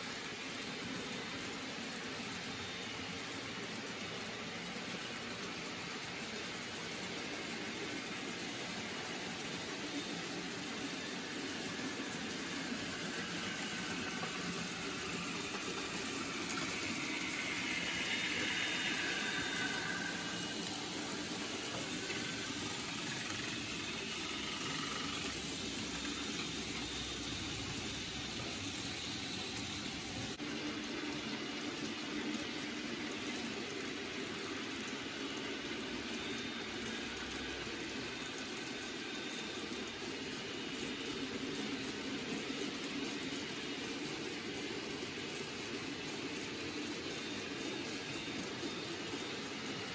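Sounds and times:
model train motor whirring: 0.0s - 31.0s
faint whine: 9.4s - 30.8s.

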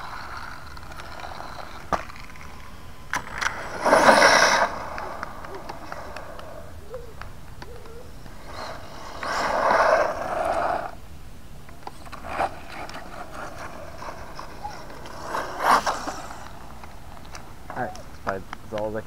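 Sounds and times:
knocks and scrapes on curb: 0.0s - 11.0s, 11.6s - 19.0s
rc truck motor whirring: 11.9s - 16.8s.

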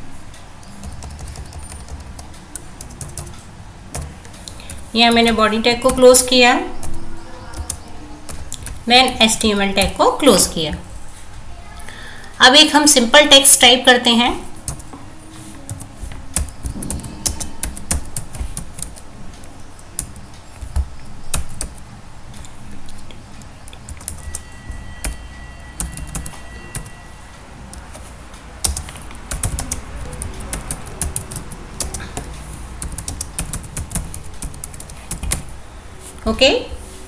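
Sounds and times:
typing on computer keyboard: 0.6s - 10.0s, 15.7s - 19.0s, 20.0s - 21.8s, 23.4s - 25.2s, 25.8s - 26.9s, 27.7s - 35.5s.

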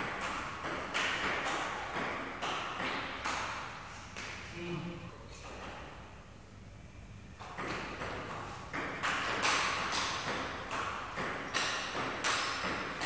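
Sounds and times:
ping-pong ball clicking: 7.4s - 13.0s.

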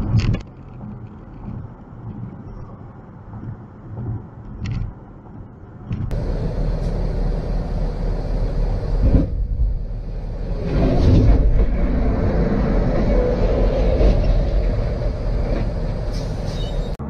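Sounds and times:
engine and tyre drone: 0.0s - 17.0s.

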